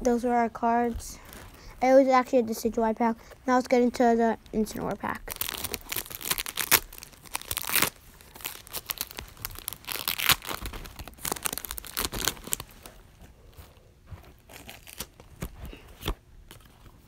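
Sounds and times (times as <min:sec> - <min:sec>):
foil pack tearing and crinkling: 0:05.0 - 0:13.0, 0:14.4 - 0:16.6.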